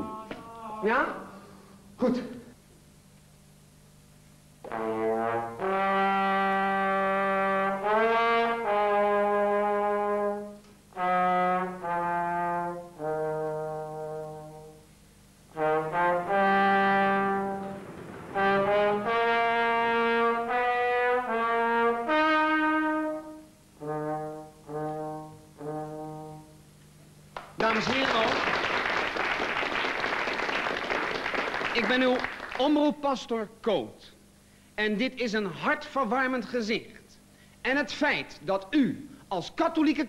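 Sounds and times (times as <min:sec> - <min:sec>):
solo trombone playing: 0:04.6 - 0:14.9, 0:15.5 - 0:26.7.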